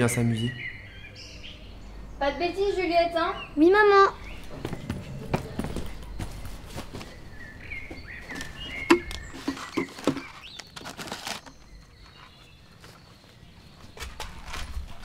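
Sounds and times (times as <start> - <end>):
small knocks and rustles: 7.9 - 15.0.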